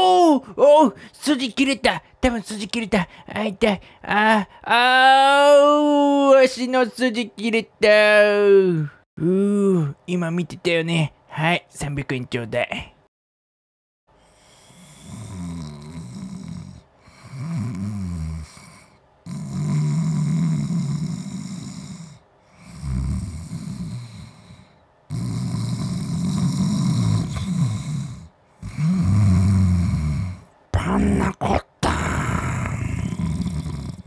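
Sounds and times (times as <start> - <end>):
cat snoring: 14.2 - 30.5, 32.3 - 34.0.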